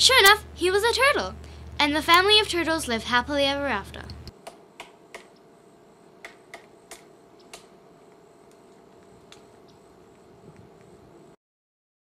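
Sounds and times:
faint room hum: 0.0 - 11.4
sharp clicks: 6.2 - 11.0.

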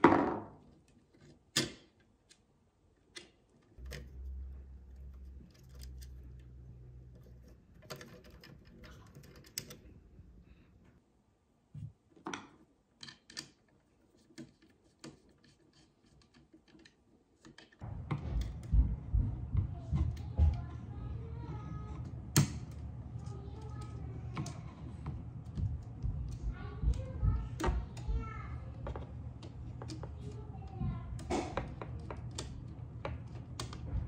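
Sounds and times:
low rumble: 17.8 - 28.0.

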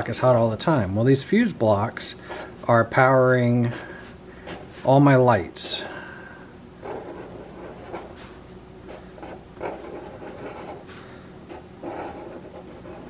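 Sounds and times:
marker scratching on cardboard: 2.2 - 2.6, 3.7 - 4.9, 6.8 - 13.0.

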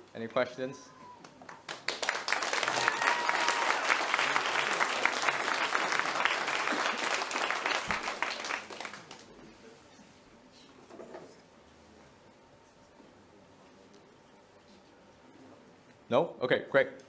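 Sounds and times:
audience applauding: 1.2 - 9.4.

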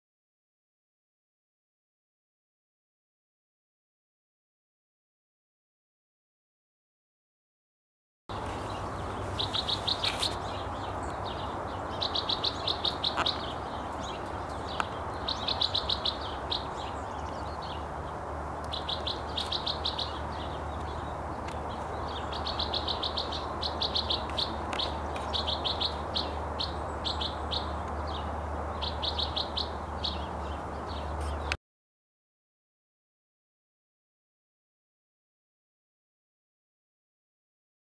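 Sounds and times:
wren singing trilled phrases: 8.4 - 31.5.

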